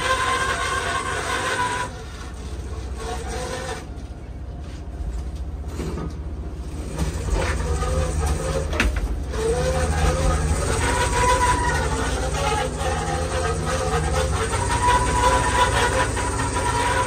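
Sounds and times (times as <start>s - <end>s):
boat engine rumbling: 0.0s - 17.0s.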